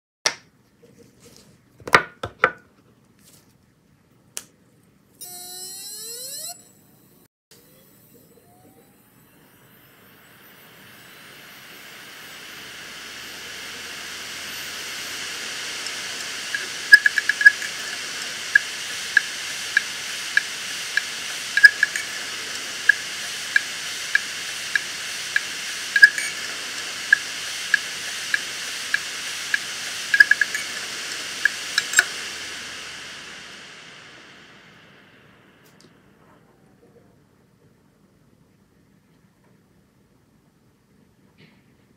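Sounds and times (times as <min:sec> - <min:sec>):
hard drive rising whine: 0:05.2 - 0:37.5
hard drive platters spinning hiss: 0:07.6 - 0:36.2
hard drive heads seeking ticks: 0:14.5 - 0:32.2
hard drive clicks: 0:15.5 - 0:32.2.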